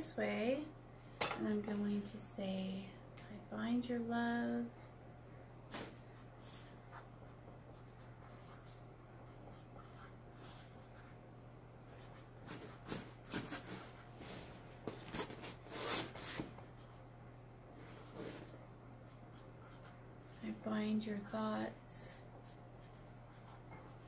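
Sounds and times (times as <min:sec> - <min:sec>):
pen scratching on paper: 0:19.1 - 0:20.0, 0:22.4 - 0:24.0.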